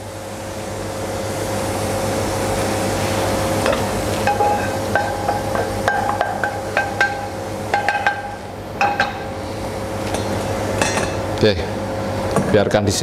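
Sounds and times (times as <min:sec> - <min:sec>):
hot oil sizzling: 0:02.5 - 0:09.4.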